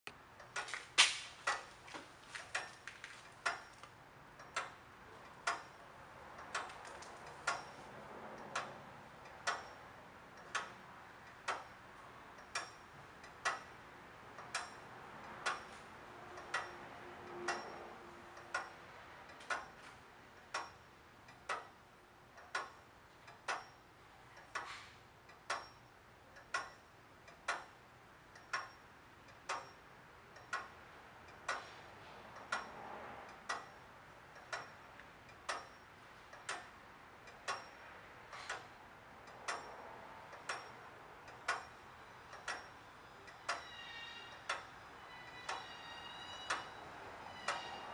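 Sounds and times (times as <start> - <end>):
clock ticking: 0.1 - 47.9.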